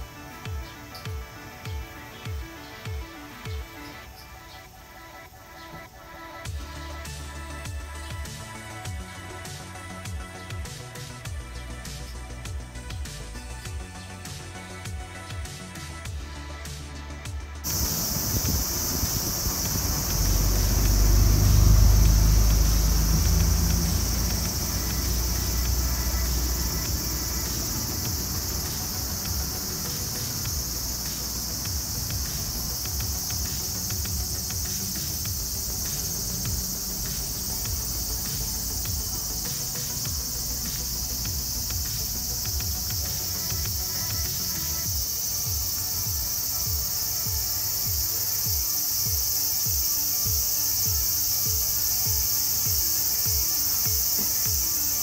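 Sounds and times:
insects droning: 0:00.0 - 0:55.0
wind rumble on microphone: 0:17.7 - 0:25.2.

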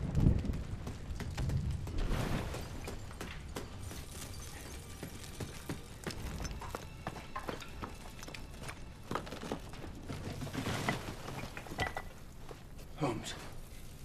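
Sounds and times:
footsteps on brick rubble: 0:00.0 - 0:14.0
bricks clattering: 0:02.5 - 0:12.6.

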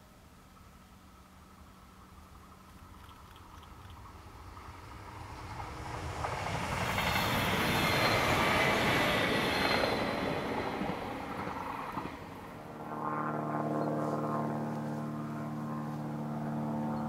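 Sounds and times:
train wheels rolling on rails: 0:02.6 - 0:12.6.

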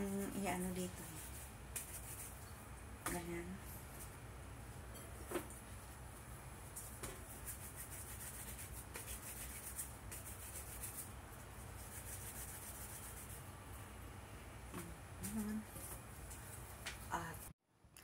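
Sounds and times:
hands rolling dough: 0:05.2 - 0:11.1.

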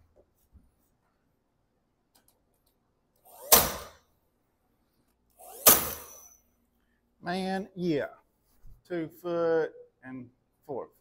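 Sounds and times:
nail gun firing into wood: 0:03.3 - 0:04.0, 0:05.4 - 0:06.2.

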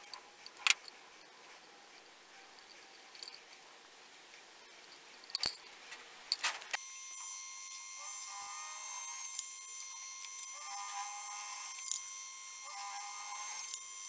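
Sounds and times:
drill press whining: 0:06.9 - 0:14.0.

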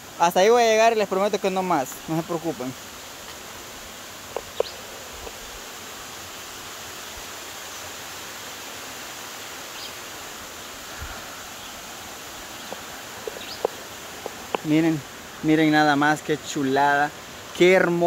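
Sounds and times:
stream rushing over rock: 0:00.0 - 0:18.0.

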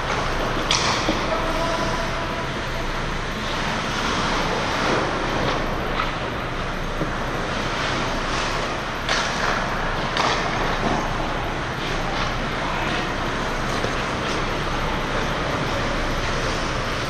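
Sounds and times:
hockey sticks clacking on puck: 0:00.1 - 0:01.3, 0:07.0 - 0:11.0.

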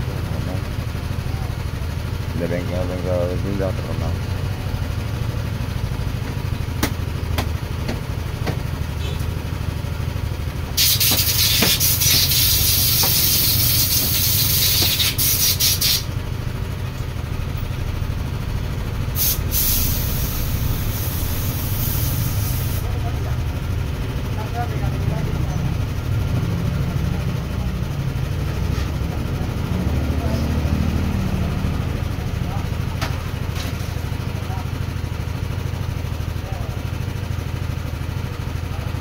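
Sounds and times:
motorcycle engine idling: 0:00.0 - 0:39.0
sharp knocks: 0:06.8 - 0:08.7
loud hiss: 0:10.7 - 0:16.1, 0:19.1 - 0:22.9.

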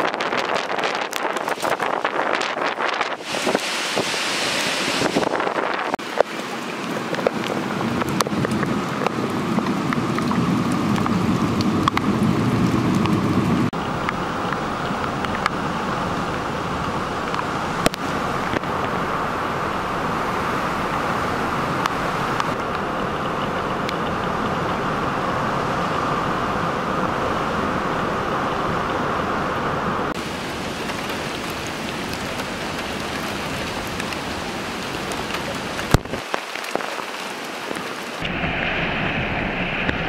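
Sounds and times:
rain falling on street: 0:00.0 - 0:40.0
low rumble: 0:38.2 - 0:40.0.

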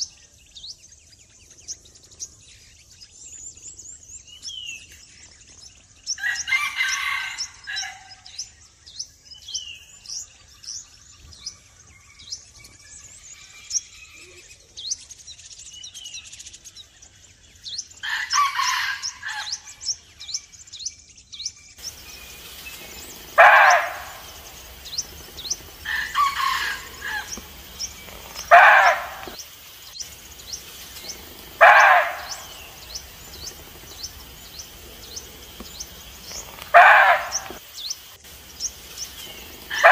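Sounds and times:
small birds chirping: 0:00.0 - 0:39.9
deer barking: 0:22.8 - 0:29.4, 0:31.0 - 0:35.0, 0:36.4 - 0:37.6, 0:39.6 - 0:39.9.

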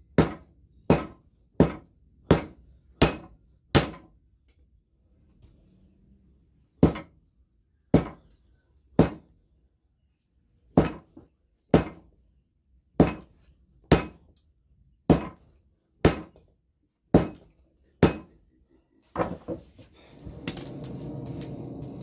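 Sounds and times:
sledgehammer striking hot steel: 0:00.2 - 0:04.2, 0:13.0 - 0:14.2, 0:15.1 - 0:16.4, 0:18.0 - 0:18.4, 0:20.1 - 0:22.0.

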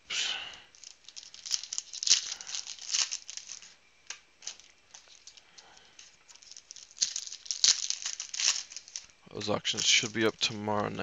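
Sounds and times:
foil wrappers crinkling: 0:00.4 - 0:11.0.

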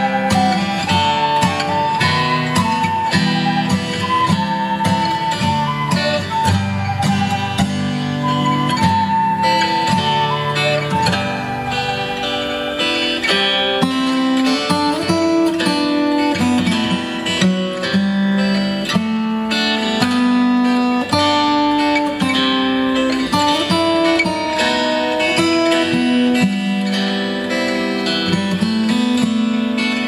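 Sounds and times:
fingerpicked acoustic guitar: 0:00.0 - 0:30.0.

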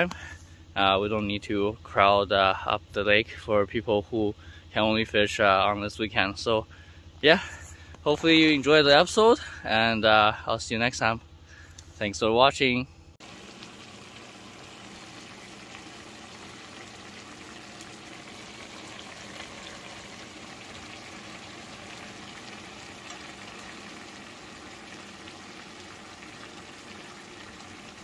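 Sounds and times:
fish sizzling in a frying pan: 0:13.2 - 0:28.0.

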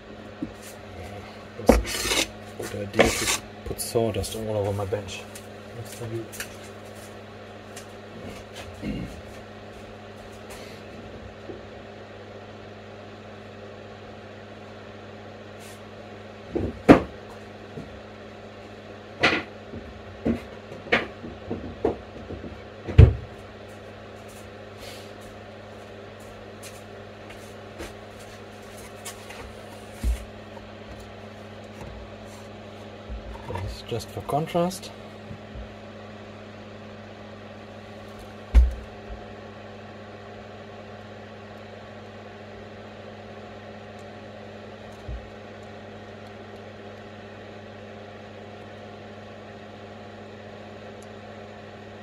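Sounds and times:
extractor fan humming: 0:00.0 - 0:52.0.

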